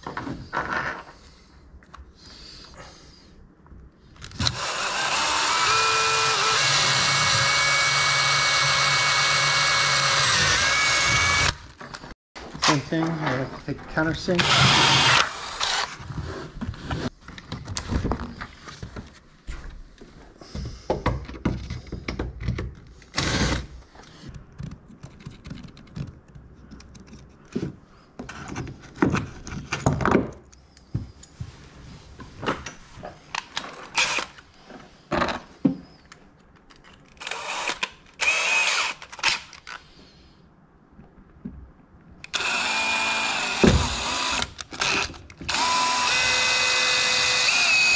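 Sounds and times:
cordless drill running: 4.4 - 11.6, 14.4 - 16.0, 23.1 - 23.6, 34.0 - 34.3, 37.2 - 39.0, 42.3 - 47.9
handling noises rustling and taps: 23.9 - 37.2.

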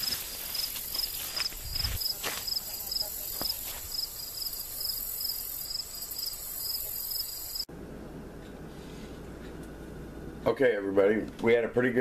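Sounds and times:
insects chirping: 0.0 - 7.7
low steady hum: 7.7 - 12.0.

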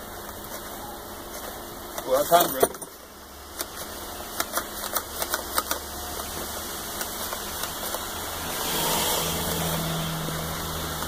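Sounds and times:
low engine hum: 3.0 - 11.0
water spraying hiss: 4.7 - 11.0.

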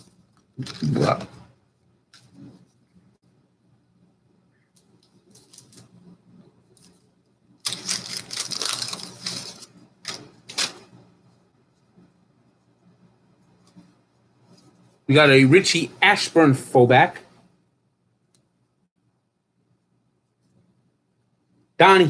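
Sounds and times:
cards rustling: 4.8 - 6.1, 7.6 - 11.0
card pack wrapper tearing: 7.6 - 10.9.

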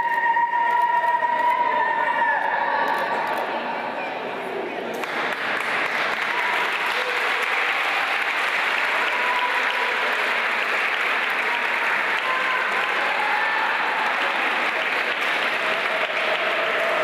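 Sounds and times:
crowd applauding: 4.9 - 17.0.

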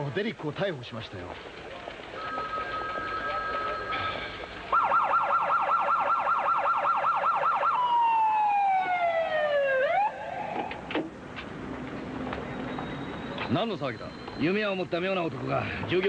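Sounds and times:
police siren yelp and wail: 4.7 - 10.9.

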